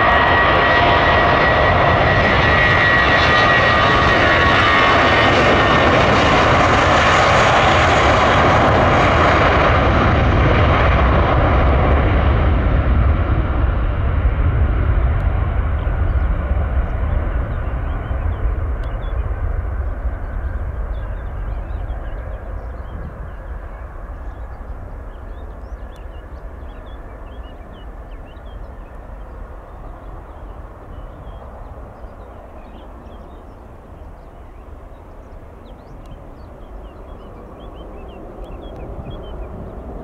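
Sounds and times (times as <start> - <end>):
jet engines rumbling: 0.0 - 40.0.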